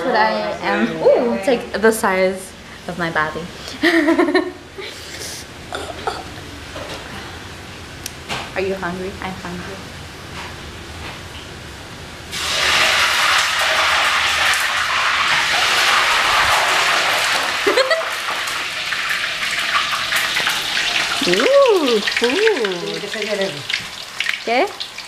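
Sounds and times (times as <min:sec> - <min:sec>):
food sizzling in hot oil: 0:12.3 - 0:25.0.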